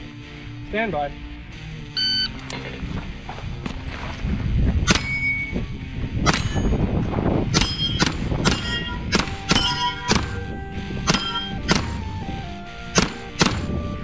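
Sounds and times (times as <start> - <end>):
gunshots: 4.9 - 5.2, 6.2 - 6.6, 7.5 - 10.4, 11.0 - 12.0, 12.9 - 13.8
steel plate clanging: 7.5 - 10.4, 11.0 - 11.8.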